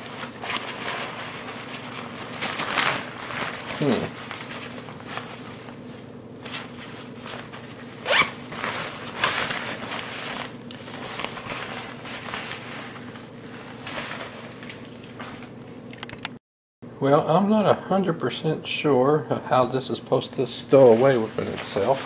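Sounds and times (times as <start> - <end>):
nylon fabric rustling: 0.0 - 15.9, 20.7 - 22.0
zipper being pulled: 8.0 - 9.6.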